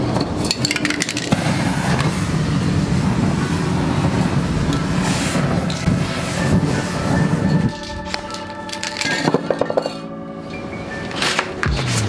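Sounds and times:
spray paint can rattling: 0.5s - 2.2s
roaring hiss of burning spray: 1.3s - 8.3s.

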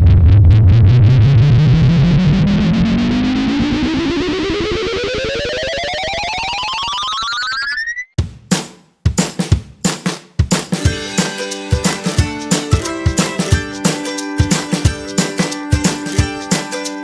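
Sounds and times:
rising pulsing synth tone: 0.5s - 8.1s.

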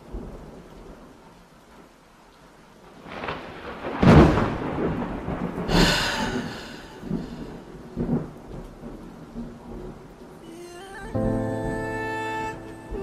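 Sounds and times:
rain falling: 0.0s - 13.0s
thunder rolling: 2.9s - 10.1s.

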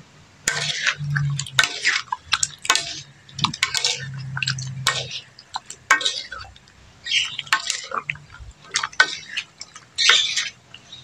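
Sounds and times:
utensils clicking on metal pan: 0.5s - 10.6s
wet slopping in a wok: 0.5s - 10.6s.

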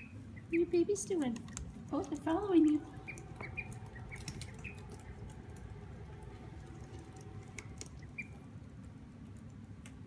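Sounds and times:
faint duckling peep: 0.0s - 1.0s, 2.7s - 5.5s, 7.2s - 8.5s.

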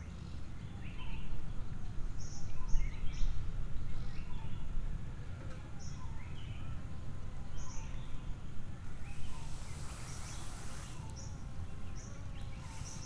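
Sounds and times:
small birds chirping: 5.7s - 13.0s
brief rustling hiss: 8.9s - 13.0s.

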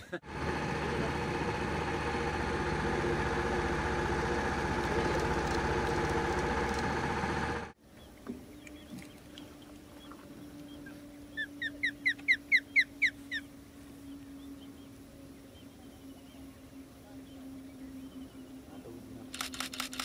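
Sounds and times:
osprey whistled chirps: 10.0s - 18.6s.

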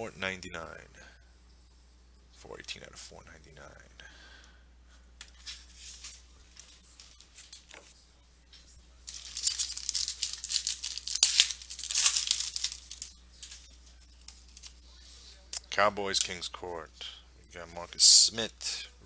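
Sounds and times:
foil wrapper tearing and crinkling: 9.1s - 13.6s
card handling: 9.1s - 14.8s.

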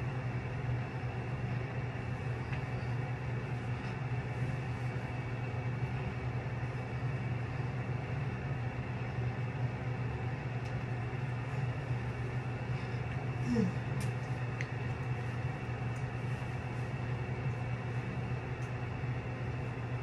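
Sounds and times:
motor hum with hiss: 0.0s - 20.0s.

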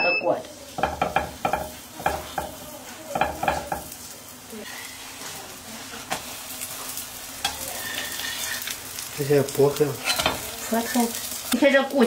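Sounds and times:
pastries sizzling in pan: 0.2s - 12.0s
spatula knocking and scraping: 0.8s - 3.9s.

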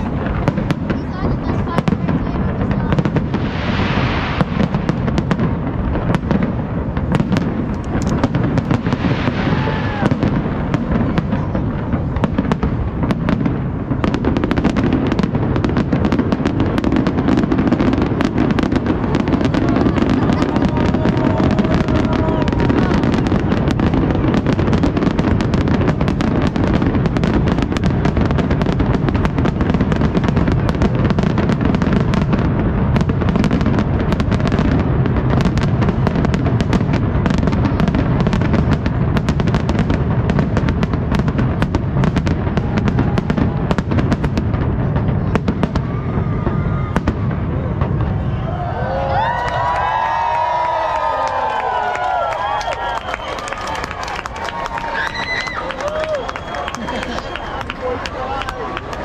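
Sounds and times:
firework shells bursting: 0.0s - 45.8s.

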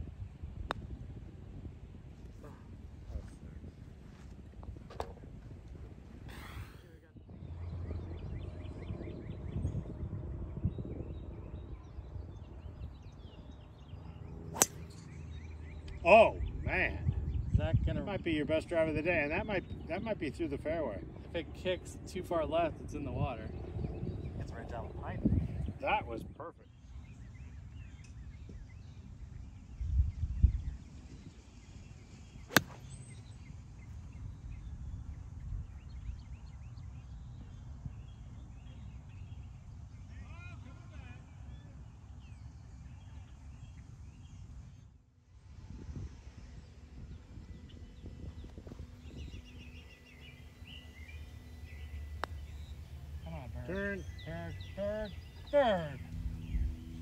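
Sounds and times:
low outdoor hum: 0.0s - 26.0s, 26.6s - 57.0s
low wind rumble: 0.0s - 40.0s, 45.4s - 57.0s
birds chirping: 5.4s - 44.5s, 46.5s - 57.0s
golf club striking ball: 14.6s - 15.2s, 32.5s - 33.0s, 50.0s - 56.5s.

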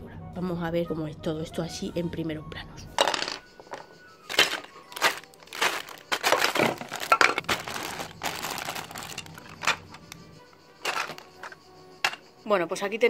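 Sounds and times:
plastic bags crinkling: 4.3s - 10.0s, 10.8s - 11.4s.

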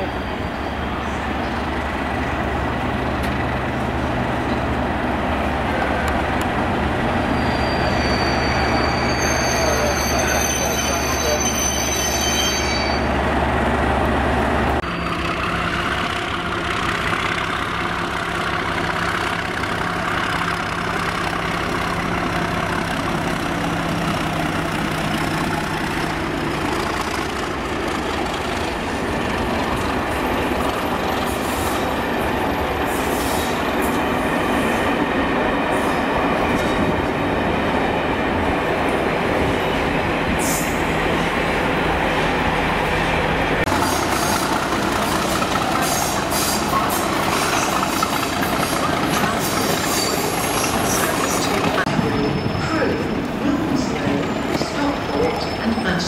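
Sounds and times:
diesel locomotive engine: 0.0s - 56.0s
wheel squeal: 7.2s - 13.1s, 14.8s - 15.4s, 43.8s - 52.7s.

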